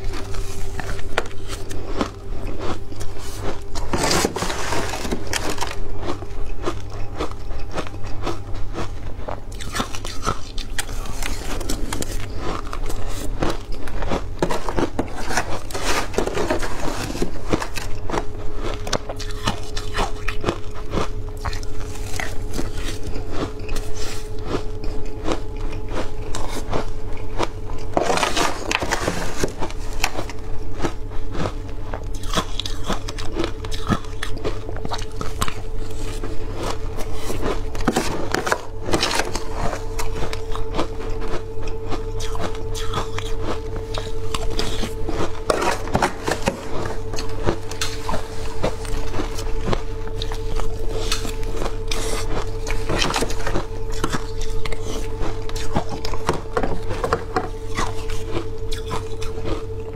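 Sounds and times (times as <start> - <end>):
ice crunching while chewed: 0.0 - 59.9
metal spoon scraping plastic tub: 3.2 - 5.8, 14.4 - 17.9, 27.9 - 30.3, 45.4 - 48.8.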